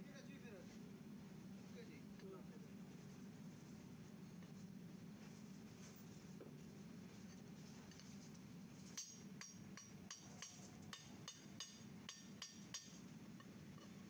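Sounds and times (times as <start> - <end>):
small hammer tapping metal: 9.0 - 13.0.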